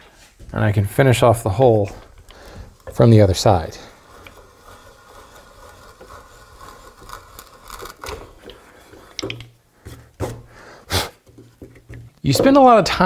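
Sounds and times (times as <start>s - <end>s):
auger bit boring through wood: 1.6s - 9.5s.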